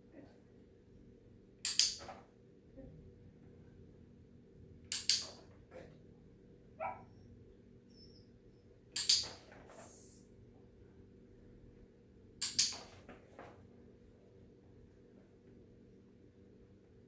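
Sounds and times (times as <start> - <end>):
sharp double clicks: 1.6 - 2.1, 4.9 - 5.4, 9.0 - 9.4, 12.4 - 12.9
dog whining: 7.9 - 8.4.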